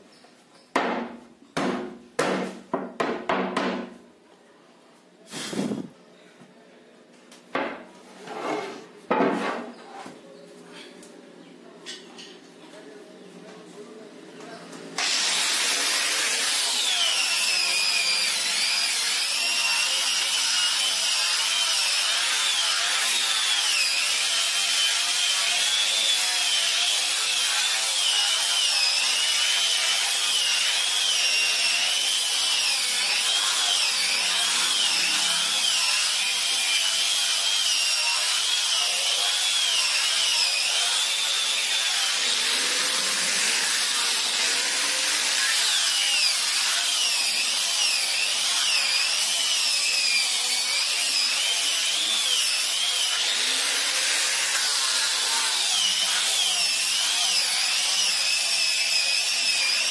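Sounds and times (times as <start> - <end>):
angle grinder sanding wood: 5.3 - 5.9, 15.0 - 59.9.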